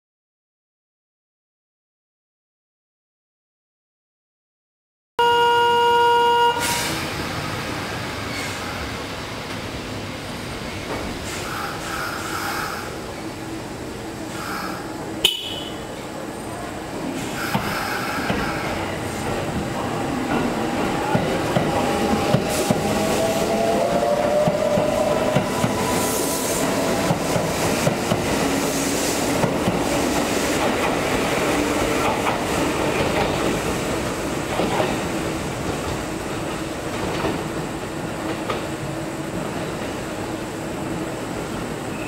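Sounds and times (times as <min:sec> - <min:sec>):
wheels clacking on rail joints: 0:26.6 - 0:37.6.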